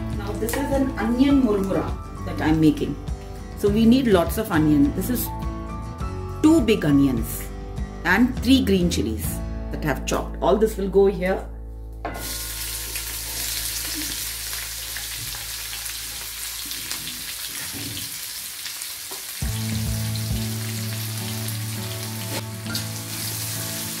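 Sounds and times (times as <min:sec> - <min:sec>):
onions frying in hot oil: 0:12.2 - 0:24.0.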